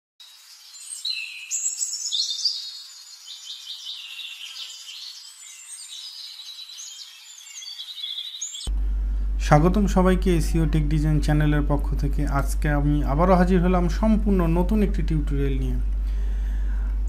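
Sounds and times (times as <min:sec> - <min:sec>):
birds chirping and trilling: 0:00.2 - 0:08.7.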